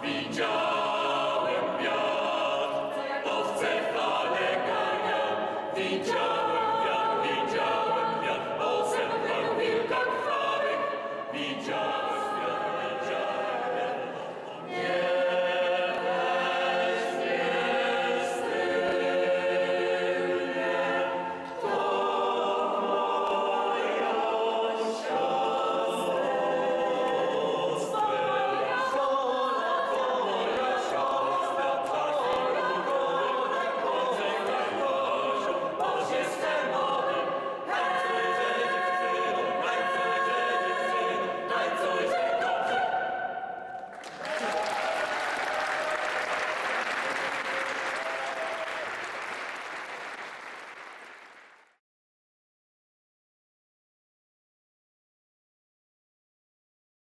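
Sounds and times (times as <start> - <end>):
mixed choir singing a cappella: 0.0 - 48.8
audience applause: 43.8 - 51.8.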